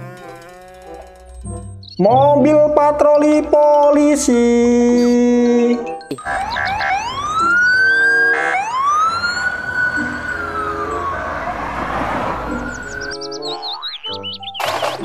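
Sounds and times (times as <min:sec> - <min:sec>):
passing traffic: 0:00.0 - 0:01.9, 0:05.9 - 0:15.0
police siren wailing: 0:06.1 - 0:14.7.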